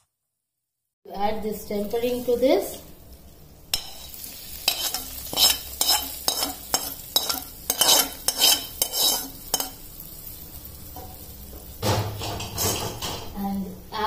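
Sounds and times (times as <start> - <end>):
hot oil sizzling: 1.2 - 14.0
metal spoon scraping a pan: 3.7 - 9.9, 12.1 - 13.4.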